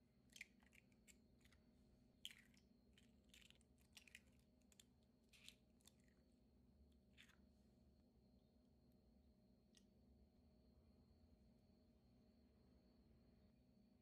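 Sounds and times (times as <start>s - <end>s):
faint irregular clicks and crackles: 0.0s - 7.6s.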